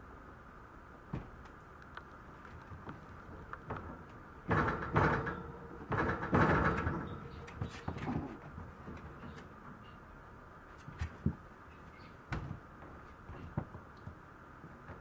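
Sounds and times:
wire playpen scraping and rattling: 2.7s - 9.5s.

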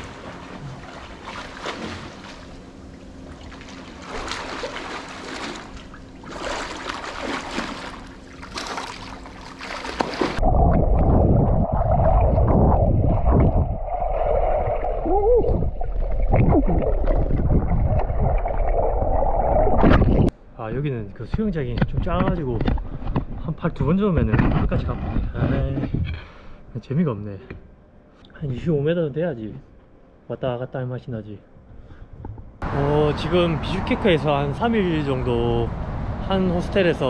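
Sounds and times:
swimmer splashing: 0.0s - 10.4s
underwater rumble and bubbling: 10.2s - 20.3s.

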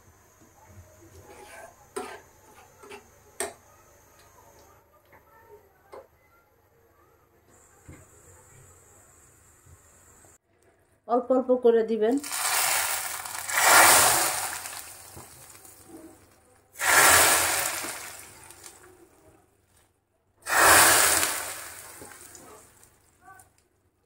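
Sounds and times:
caramel sizzling in hot milk: 12.2s - 19.0s, 20.4s - 23.5s.

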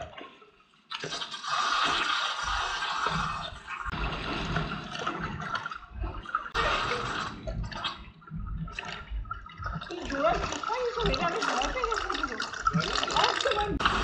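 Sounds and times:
pool water splashing: 0.0s - 14.0s.

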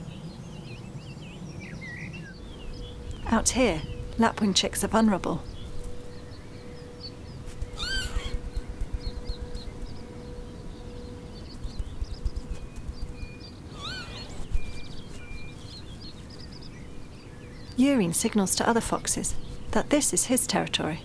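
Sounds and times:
small birds chirping: 0.0s - 21.0s
lapwing calling: 7.6s - 8.7s, 13.6s - 16.2s.

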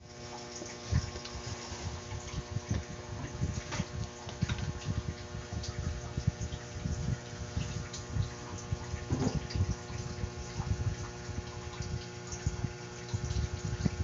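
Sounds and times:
faint steady hum: 0.0s - 14.0s
handling bumps and rumbling: 9.0s - 9.8s.

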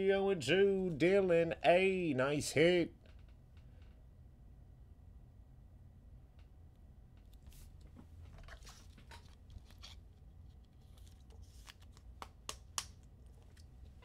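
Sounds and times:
trading cards rustling and clicking: 8.4s - 13.8s.

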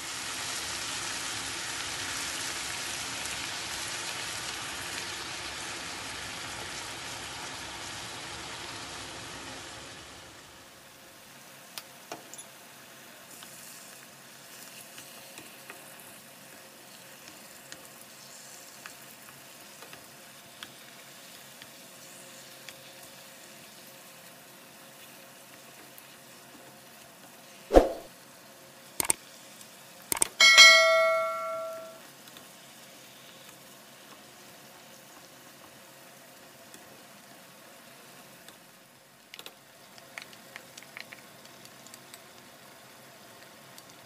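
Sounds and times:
meat and onion sizzling in a pan: 0.0s - 44.0s
sharp clicks: 30.1s - 30.4s.

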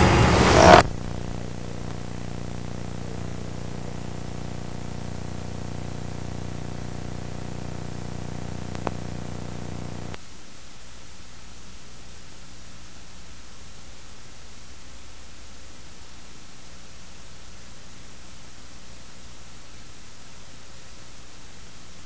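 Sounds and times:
electrical hum: 0.0s - 10.2s
recording hiss: 0.0s - 22.0s.

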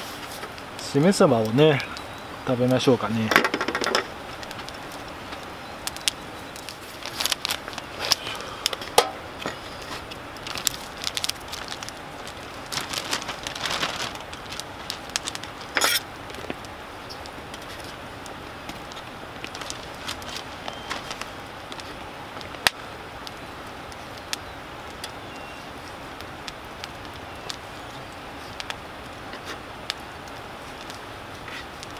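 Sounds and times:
campfire crackling: 0.0s - 31.9s
food and wrapping rustling: 0.0s - 31.9s.

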